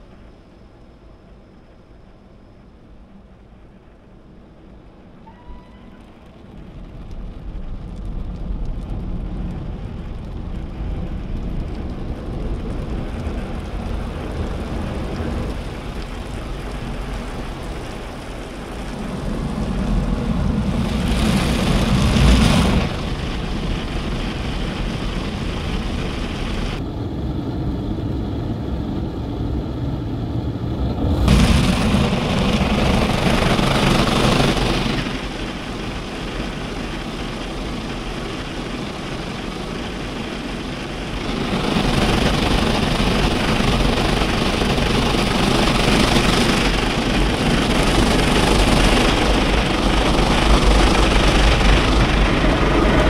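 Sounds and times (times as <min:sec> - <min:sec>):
water spraying on car: 0:06.4 - 0:26.8, 0:30.6 - 0:53.0
car wash machinery running: 0:12.1 - 0:53.0.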